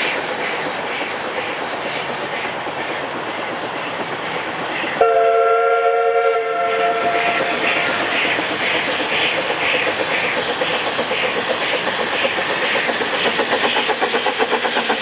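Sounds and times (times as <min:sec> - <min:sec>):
steam locomotive exhaust rushing: 0:00.0 - 0:15.0
steam whistle chord: 0:05.0 - 0:07.5.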